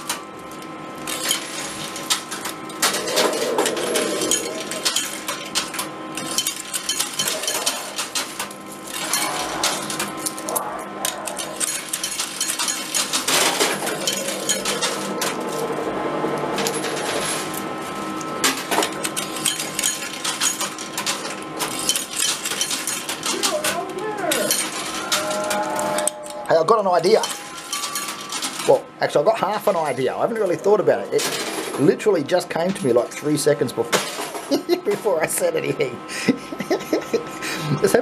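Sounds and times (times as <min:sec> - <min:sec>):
arcade machine background tones: 0:00.0 - 0:38.0
coins dropping and clinking: 0:11.4 - 0:15.2, 0:27.2 - 0:28.7.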